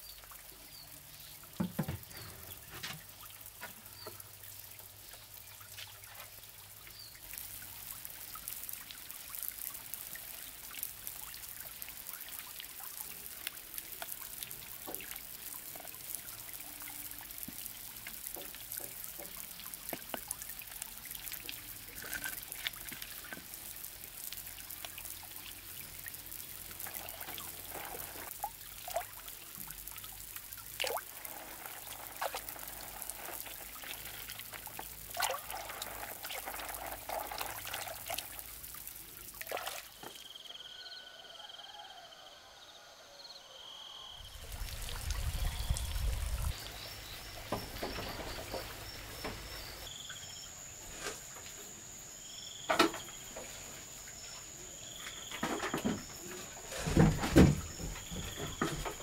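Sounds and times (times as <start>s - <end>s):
water splashing and trickling: 0.0s - 40.6s, 44.2s - 59.0s
plastic bucket knocks: 1.6s - 2.4s.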